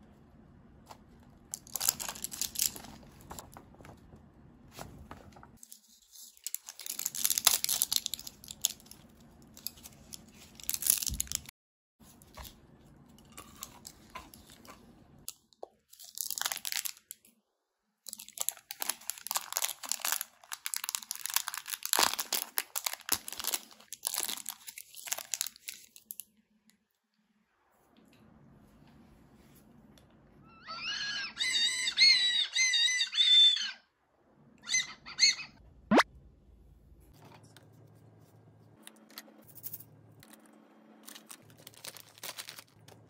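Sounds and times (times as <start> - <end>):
plastic packaging crinkling and tearing: 1.6 - 3.5, 5.6 - 11.5, 13.3 - 17.3, 18.1 - 26.3, 41.0 - 43.0.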